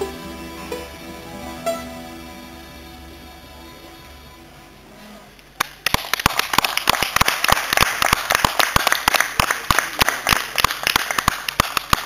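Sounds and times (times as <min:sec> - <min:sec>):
crowd applauding: 0:05.6 - 0:12.0
sharp single hand claps: 0:05.6 - 0:12.0.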